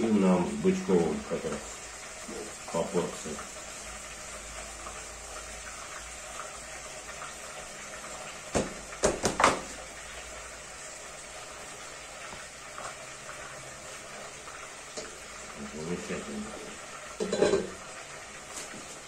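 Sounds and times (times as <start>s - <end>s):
kitchenware knocking: 17.2s - 17.7s.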